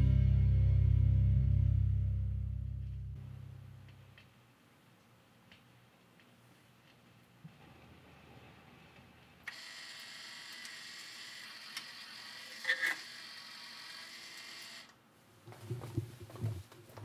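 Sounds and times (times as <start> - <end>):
jukebox mechanism whirring: 9.5 - 14.9.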